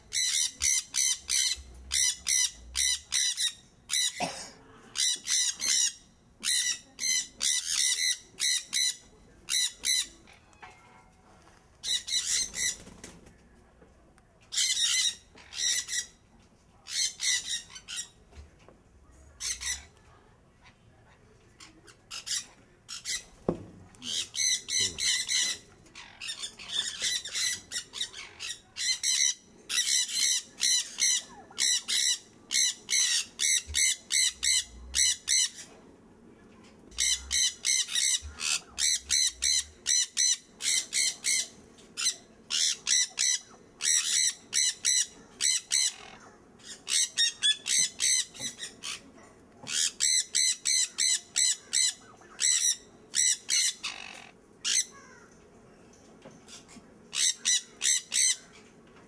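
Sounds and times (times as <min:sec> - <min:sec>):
conures screeching: 0:24.1 - 0:35.7, 0:37.0 - 0:49.1, 0:49.7 - 0:55.1, 0:57.1 - 0:58.5.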